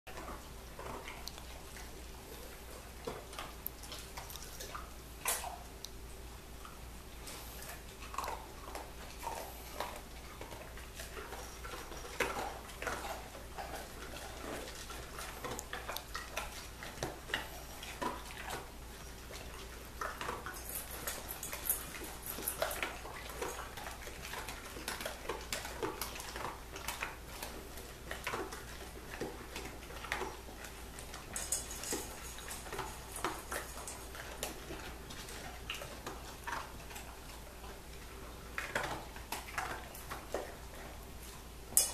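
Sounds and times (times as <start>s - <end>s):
dog crunching dry kibble: 0.2s - 5.9s, 6.8s - 41.9s
kibble clinking on metal bowl: 31.2s - 34.1s.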